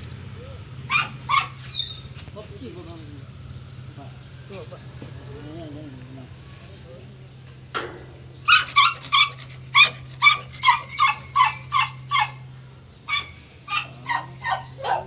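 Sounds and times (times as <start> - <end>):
dog yelping: 0.0 - 2.3, 8.4 - 15.0.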